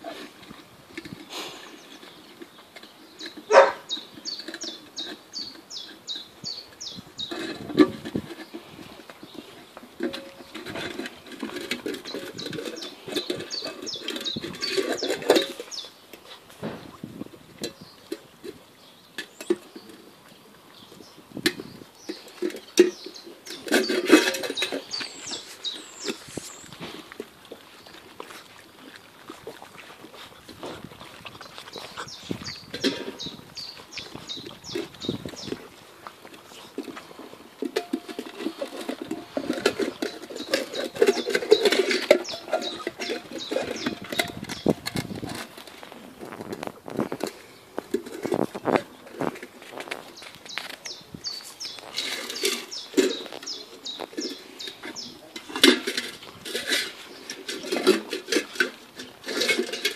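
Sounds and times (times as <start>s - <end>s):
metal bowl clinking on paving: 0.0s - 16.0s, 17.6s - 20.1s, 21.5s - 28.4s, 31.7s - 59.9s
puppies chewing and smacking: 0.0s - 59.9s.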